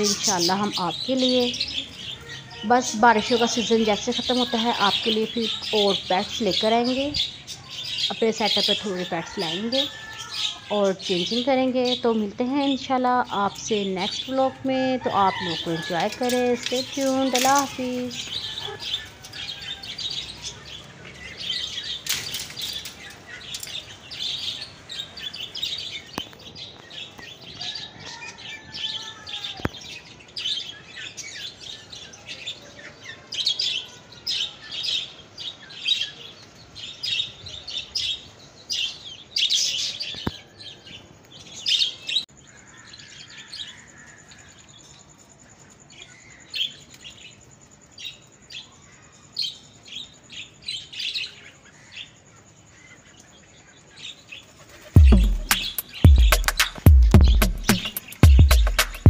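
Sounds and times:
budgerigars chirping and chattering: 0.0 - 14.5, 52.8 - 59.0.

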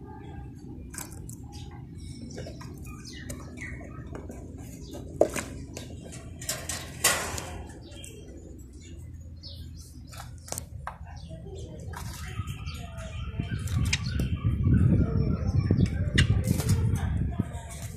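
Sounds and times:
sparrows chirping: 0.0 - 17.9
clicks against wire birdcage: 5.4 - 8.2.

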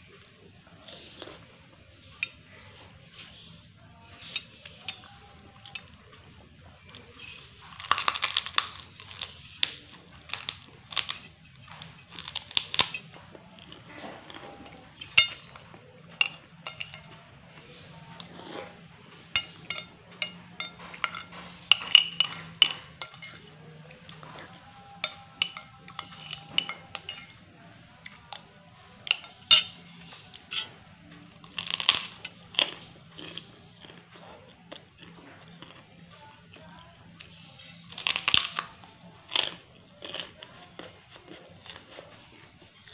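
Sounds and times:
chewing: 0.1 - 42.9
crackers crunching: 0.1 - 42.9
fingers clinking on glass plate: 6.9 - 27.4, 29.0 - 34.0, 37.2 - 40.3.

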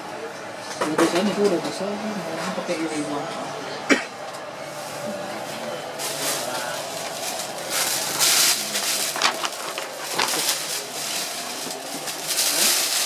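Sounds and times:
paper rustling and crinkling: 4.8 - 13.0.

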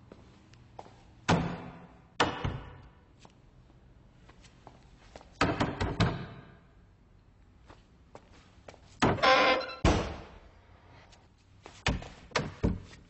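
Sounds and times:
toilet doors banging open: 9.0 - 10.4.

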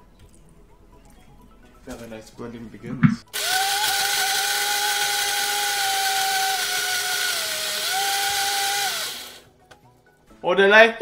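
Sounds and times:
blender motor whining: 3.3 - 9.4.

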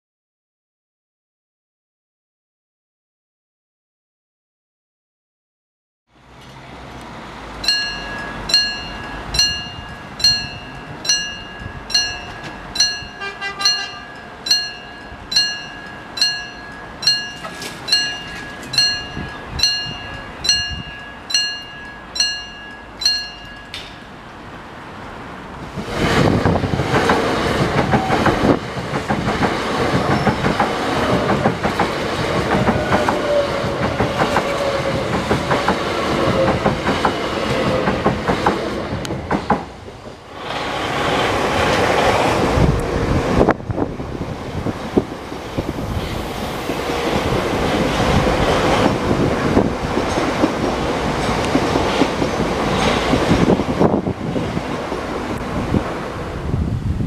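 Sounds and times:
train wheels clattering on rails: 6.4 - 24.3, 25.6 - 43.6, 44.4 - 56.0
level crossing bell ringing: 7.6 - 24.2.

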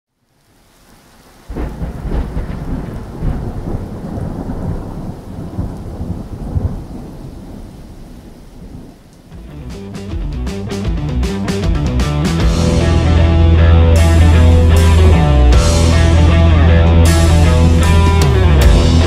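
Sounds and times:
deep rumble: 12.5 - 19.0.

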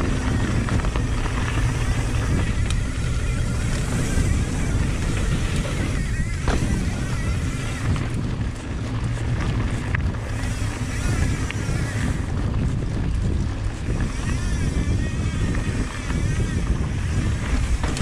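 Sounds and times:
wavering high whine: 0.0 - 12.3, 13.8 - 18.0
bike tyres rumbling on dirt: 0.0 - 18.0
wind buffeting microphone: 0.0 - 18.0.

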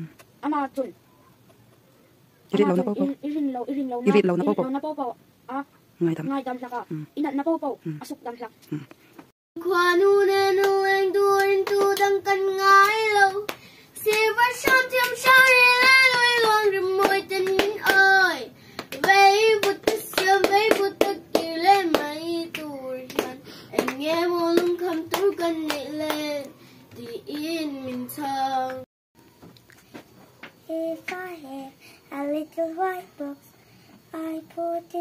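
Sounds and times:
girl singing unaccompanied: 2.6 - 5.7, 9.6 - 28.9, 30.6 - 35.0.

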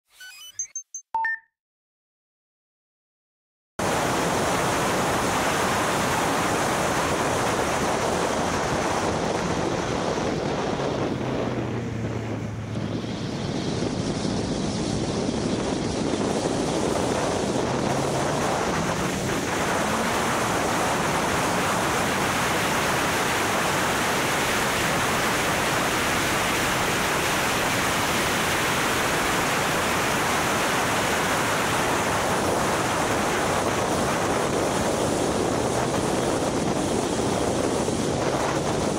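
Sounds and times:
wind noise on microphone: 3.8 - 38.9
faint engine: 9.1 - 28.0.

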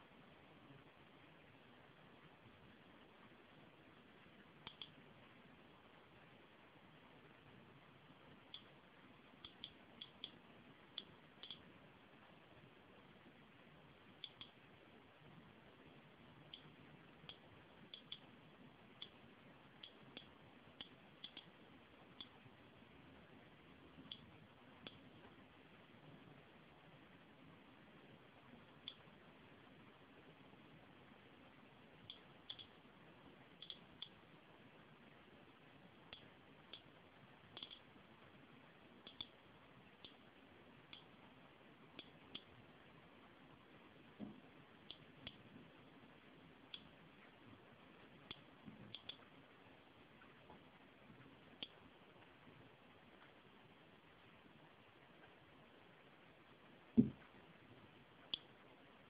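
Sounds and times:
geiger counter clicking: 4.6 - 5.0, 8.4 - 11.7, 14.1 - 14.7, 15.8 - 22.5, 23.9 - 25.1, 32.0 - 32.9, 33.5 - 34.2, 36.0 - 37.9, 39.0 - 41.2, 41.9 - 42.6, 44.8 - 45.5, 48.2 - 49.3, 58.3 - 58.5.

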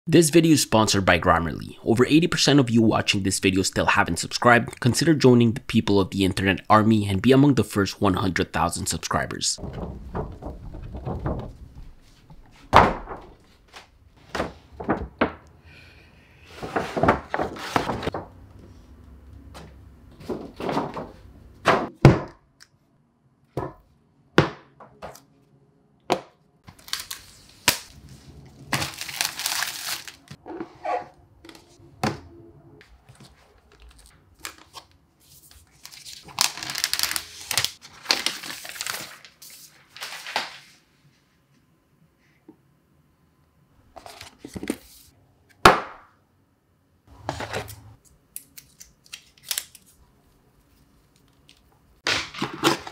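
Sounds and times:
cardboard sliding and rustling: 16.6 - 18.2.

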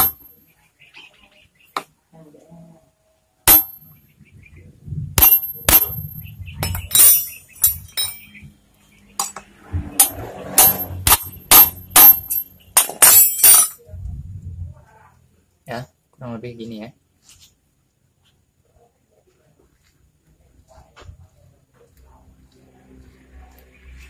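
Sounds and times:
bumping and handling noise: 0.0 - 0.3, 5.2 - 8.3, 9.2 - 13.8.

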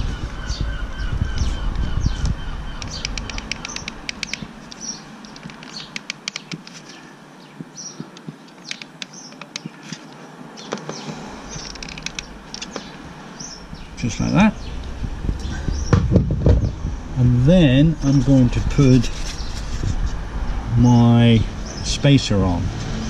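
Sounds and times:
bird chirps: 0.0 - 17.2.

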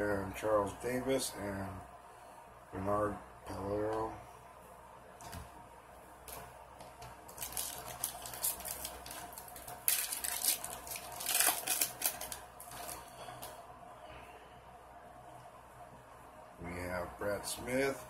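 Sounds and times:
foil wrapper crinkling and tearing: 7.3 - 13.5.

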